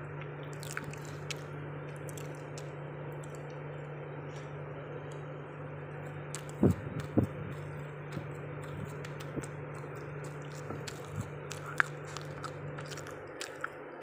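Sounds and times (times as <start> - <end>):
low hum: 0.0 - 14.0
chewing and mouth clicks: 0.2 - 5.3, 5.9 - 14.0.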